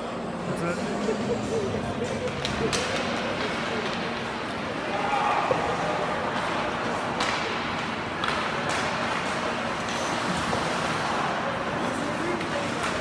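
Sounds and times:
arena noise: 0.0s - 13.0s
sticks and skates clacking on ice: 2.0s - 13.0s.

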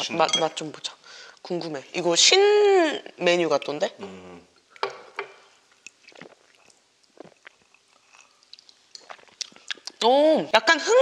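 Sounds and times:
chewing noodles: 5.8s - 10.0s
small mouth clicks: 5.8s - 10.0s
sipping from a glass: 5.9s - 9.9s.

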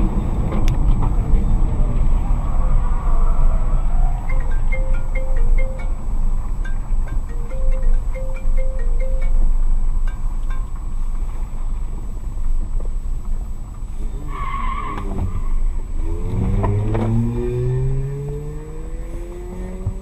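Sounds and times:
low road rumble: 0.0s - 20.0s
car engine speeding up: 14.1s - 20.0s.

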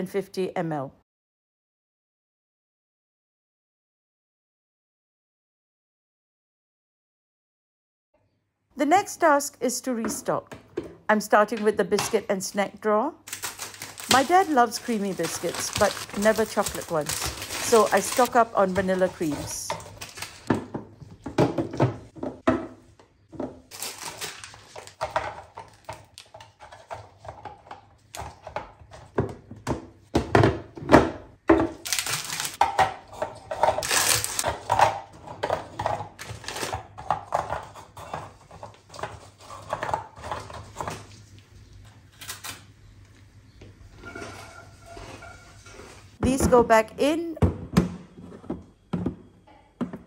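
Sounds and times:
plastic wrapper crinkling: 13.3s - 20.5s, 23.7s - 26.3s, 31.8s - 32.6s, 33.8s - 34.5s
plastic boxes clicking and knocking: 13.4s - 23.9s.

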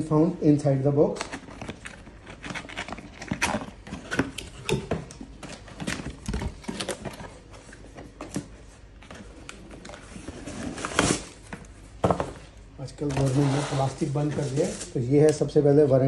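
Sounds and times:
cardboard scraping and rustling: 5.4s - 11.5s, 13.0s - 15.0s.

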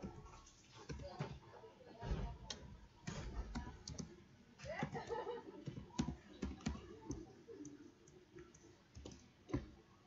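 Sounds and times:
computer keyboard typing: 5.6s - 9.2s.

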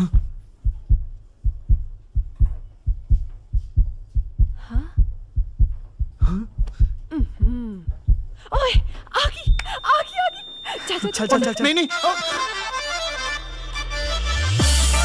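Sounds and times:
heartbeat thumps: 0.0s - 9.9s.

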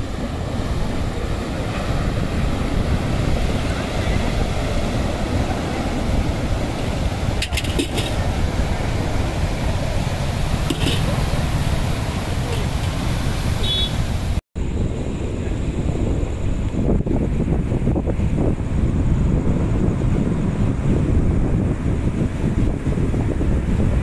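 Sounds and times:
surf breaking on rocky shore: 0.0s - 14.4s
wind buffeting microphone: 0.0s - 24.0s.

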